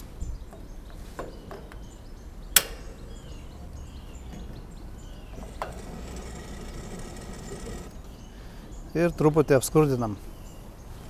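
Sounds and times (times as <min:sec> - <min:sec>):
bird chirps: 0:00.0 - 0:11.0
gas grill igniter click: 0:02.5 - 0:03.3
grill lid click: 0:02.5 - 0:03.3, 0:05.3 - 0:07.9.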